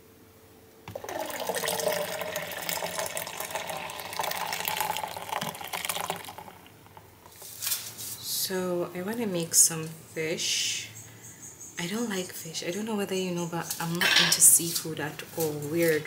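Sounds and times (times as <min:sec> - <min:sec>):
juice pouring into pitcher: 0:00.9 - 0:07.5.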